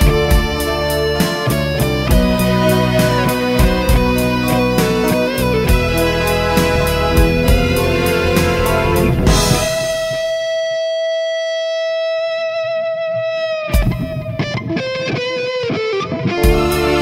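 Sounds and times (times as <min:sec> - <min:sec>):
drums: 0:00.0 - 0:10.9, 0:13.7 - 0:14.6, 0:16.4 - 0:17.0
bass guitar: 0:00.0 - 0:11.0, 0:13.6 - 0:15.0, 0:16.2 - 0:17.0
distorted electric guitar: 0:00.0 - 0:17.0.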